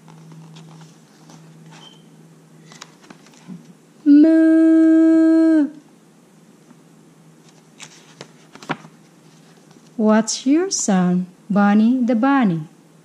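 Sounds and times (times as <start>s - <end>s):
book page turning: 0.0s - 2.0s, 2.6s - 3.7s, 7.4s - 10.0s.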